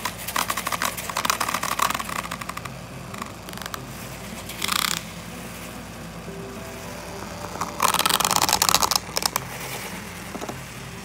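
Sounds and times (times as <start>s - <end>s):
whisk rattling in cup: 0.0s - 3.8s
handheld whisk whirring: 0.0s - 5.8s, 6.7s - 11.0s.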